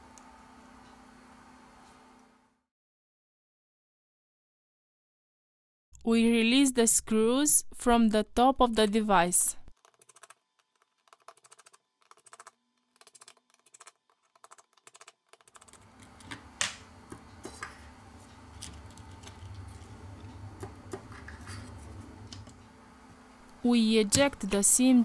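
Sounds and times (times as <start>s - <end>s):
low steady hum: 15.7s - 25.0s.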